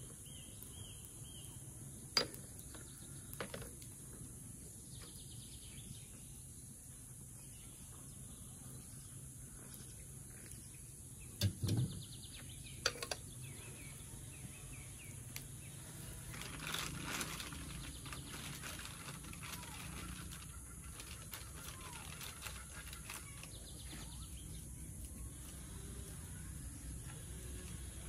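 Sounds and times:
insect drone: 0:00.0 - 0:28.0
plastic bag crinkling: 0:16.3 - 0:24.4
bird chirps: 0:19.4 - 0:27.4.

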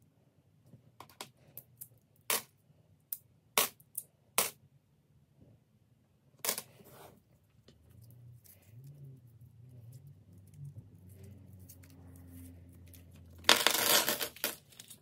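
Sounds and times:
coins rattling: 0:13.4 - 0:14.7.

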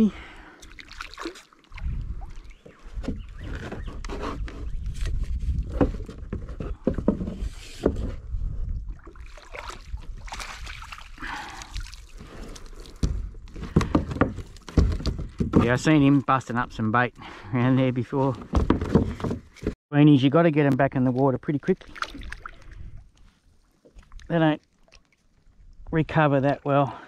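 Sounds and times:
water splashing beside kayak: 0:00.5 - 0:03.6, 0:08.8 - 0:14.7, 0:21.7 - 0:25.9.

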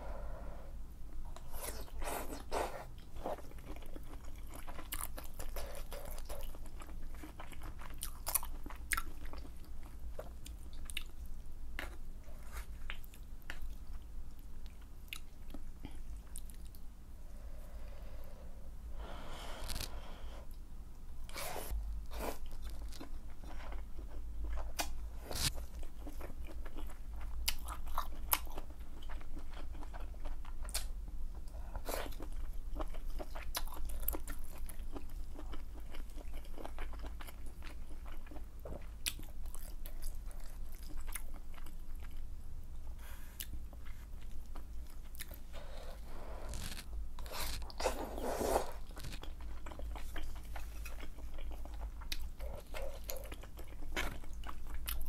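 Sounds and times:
chewing with wet clicks: 0:03.0 - 0:12.0, 0:12.8 - 0:16.8, 0:25.6 - 0:42.3, 0:48.8 - 0:55.0.

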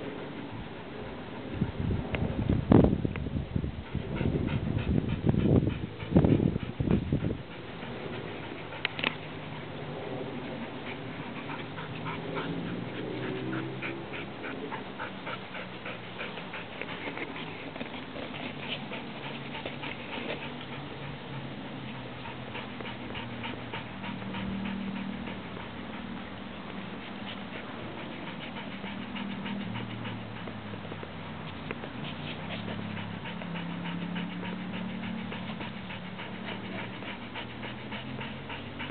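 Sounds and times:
puppy paws scratching sand: 0:24.7 - 0:38.9.

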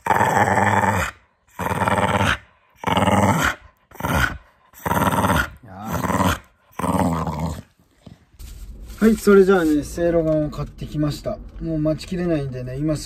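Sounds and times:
dog grumbling and growling: 0:00.0 - 0:09.4.

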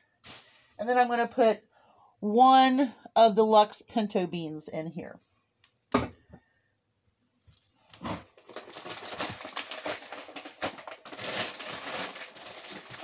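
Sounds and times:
plastic packaging rustling: 0:07.5 - 0:13.0.

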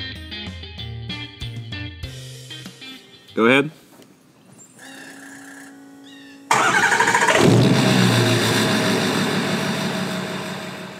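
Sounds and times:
engine starting and running: 0:06.5 - 0:10.9.

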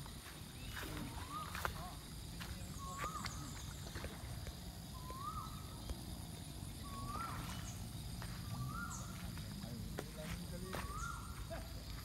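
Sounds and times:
faint high chirps: 0:04.9 - 0:06.1
animal calling: 0:06.8 - 0:09.2.

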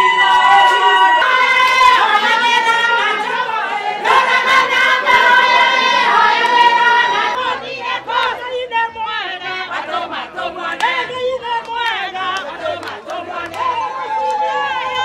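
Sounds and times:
group singing unaccompanied: 0:00.0 - 0:15.0.

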